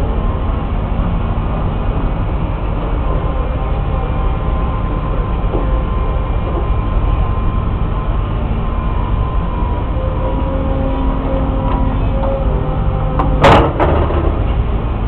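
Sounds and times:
excavator diesel engine rumbling: 0.0s - 15.0s
faint steady whine: 0.0s - 15.0s.

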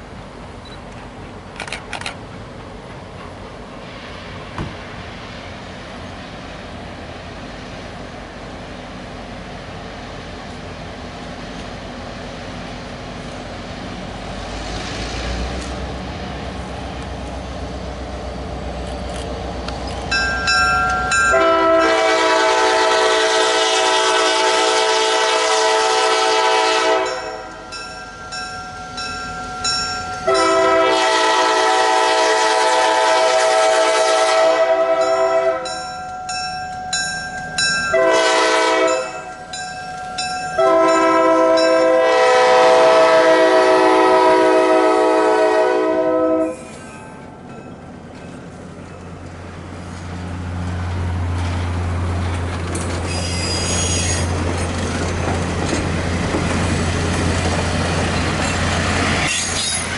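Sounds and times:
locomotive engine rumble: 0.0s - 59.9s
train air horn blasts: 21.3s - 27.7s, 30.2s - 35.7s, 37.9s - 39.3s, 40.6s - 46.7s.

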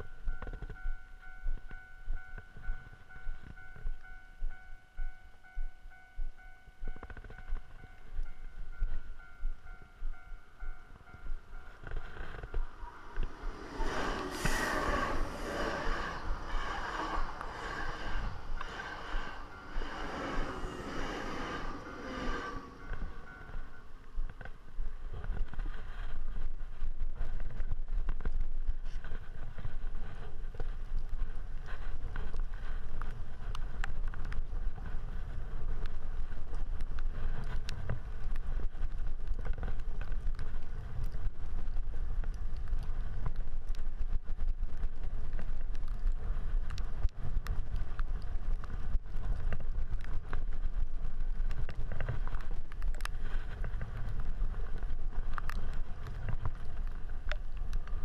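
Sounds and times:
wind rumble on microphone: 0.0s - 58.0s
tyre hiss on wet pavement: 13.0s - 23.5s.

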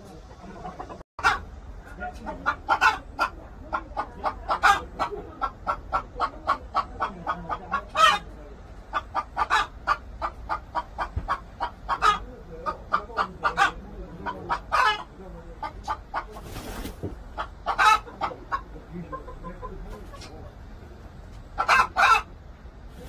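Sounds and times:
chickens clucking: 0.0s - 23.0s.

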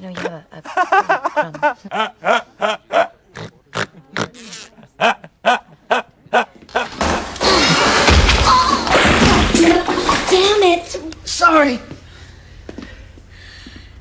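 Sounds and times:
man laughing hard: 0.7s - 3.1s, 4.9s - 7.0s.

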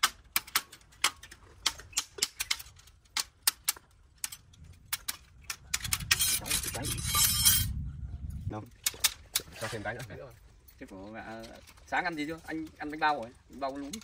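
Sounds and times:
metallic clicks of tie wire: 0.0s - 6.4s
rushing scraping noise: 6.0s - 7.8s.

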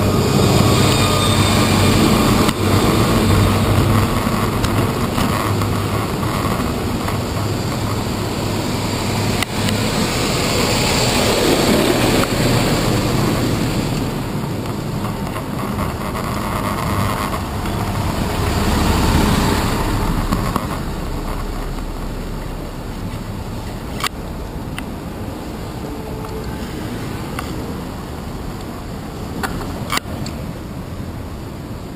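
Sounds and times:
city traffic passing: 0.0s - 31.9s.

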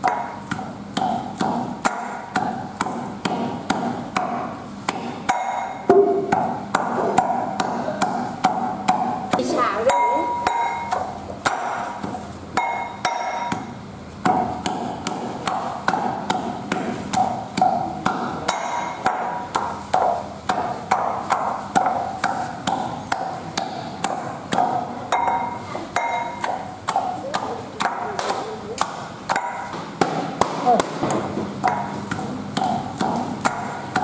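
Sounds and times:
metal pestle pounding in metal pot: 0.0s - 34.0s.

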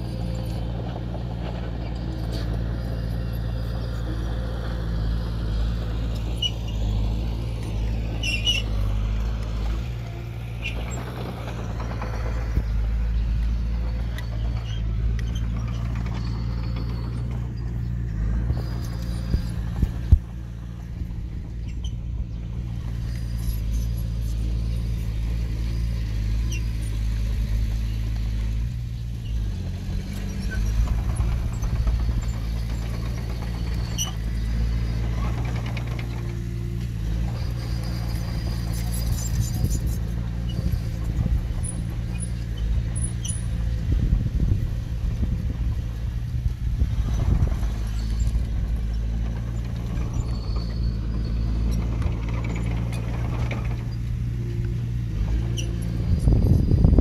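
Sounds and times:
bulldozer diesel engine running: 0.0s - 57.0s
high-pitched squeals: 6.3s - 9.5s.

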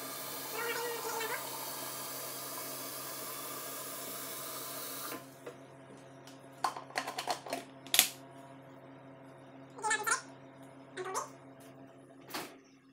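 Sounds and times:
faucet running into a pitcher: 0.0s - 5.1s.

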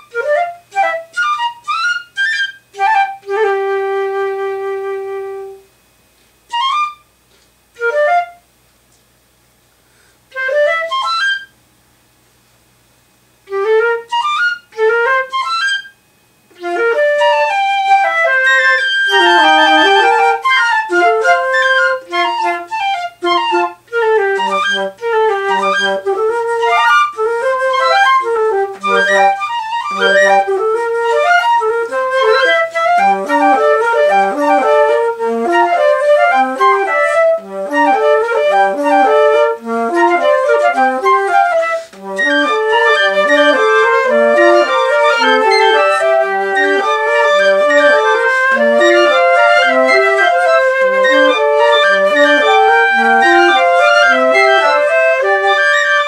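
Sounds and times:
flute trio playing: 0.0s - 5.7s, 6.5s - 7.1s, 7.7s - 8.5s, 10.3s - 11.6s, 13.4s - 56.0s.

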